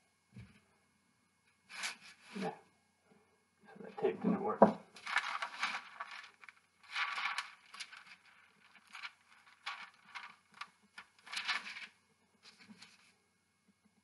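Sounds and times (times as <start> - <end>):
parchment paper crinkling: 3.9 - 13.2.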